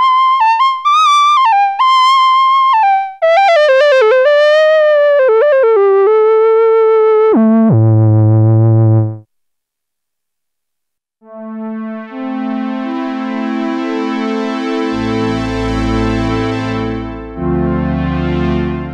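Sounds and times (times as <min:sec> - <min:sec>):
synthesizer lead line: 0:07.2 - 0:09.2, 0:14.9 - 0:18.9.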